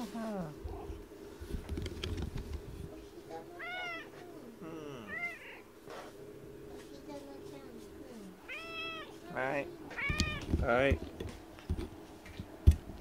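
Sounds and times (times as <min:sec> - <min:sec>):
rustling and small knocks: 0:01.4 - 0:02.9, 0:09.9 - 0:13.0
cat meowing: 0:03.6 - 0:04.2, 0:05.1 - 0:05.6, 0:08.4 - 0:09.2, 0:09.9 - 0:10.5.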